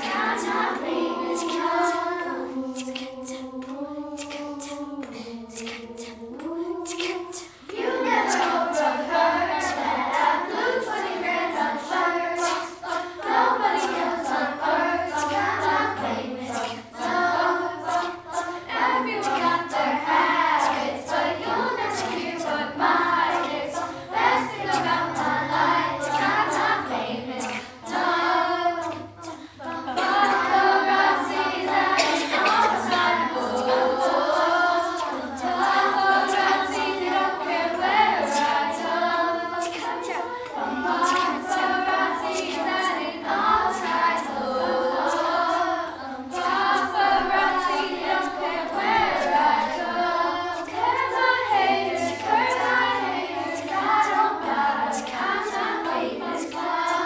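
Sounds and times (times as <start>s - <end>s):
children's choir singing a cappella: 0.0s - 57.0s.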